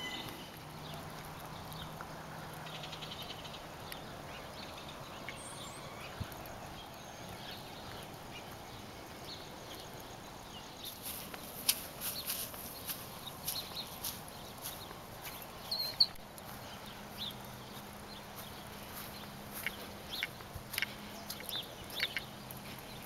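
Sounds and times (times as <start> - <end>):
faint high chirps: 0.0 - 0.6
footsteps: 10.8 - 23.0.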